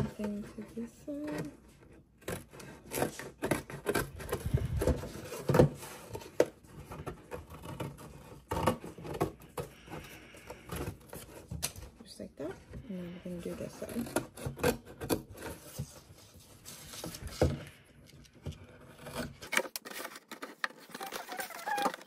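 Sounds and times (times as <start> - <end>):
cardboard rustling: 0.0 - 12.7, 13.6 - 22.0
scissors snipping cardboard: 2.2 - 9.7, 13.8 - 15.9.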